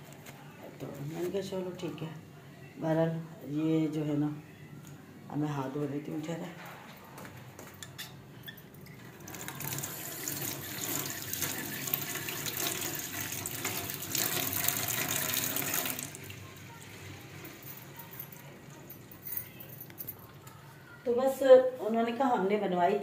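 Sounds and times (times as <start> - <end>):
tap water running into sink: 9.3 - 16.3.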